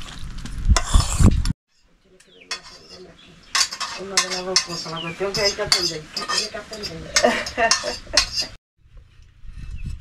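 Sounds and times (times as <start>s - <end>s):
metal spoon scraping a pot: 0.8s - 8.6s
food sizzling: 2.4s - 8.6s.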